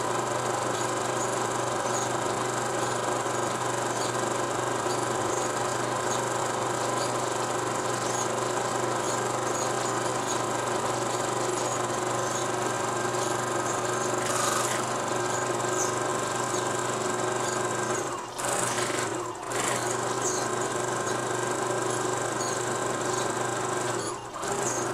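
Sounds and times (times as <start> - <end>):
film projector whirring: 0.0 - 24.9.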